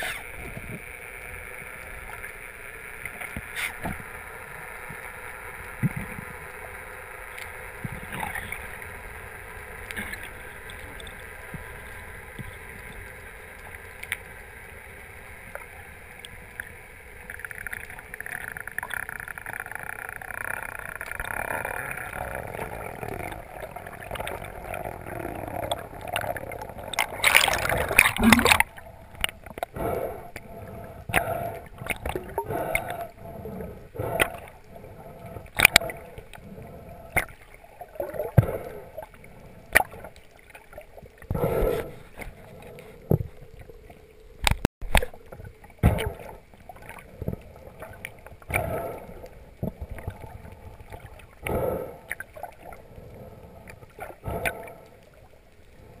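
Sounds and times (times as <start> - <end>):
underwater gurgling: 0.0 - 56.0
underwater rushing burst: 22.2 - 36.2.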